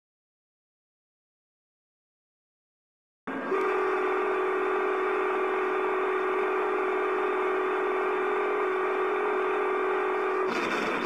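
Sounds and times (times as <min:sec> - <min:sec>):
locomotive air horn blast: 0:03.3 - 0:11.0.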